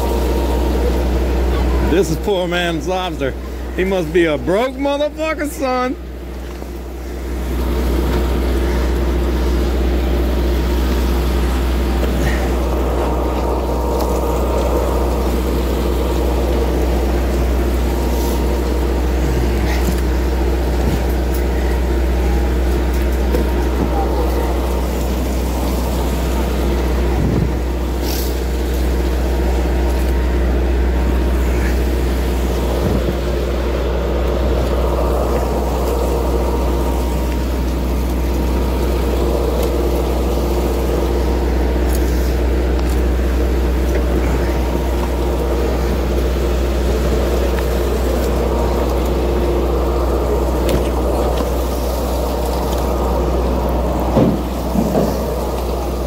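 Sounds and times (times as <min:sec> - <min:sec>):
diesel engine droning: 0:00.0 - 0:56.0
knocks and clicks handling fish: 0:54.0 - 0:55.7.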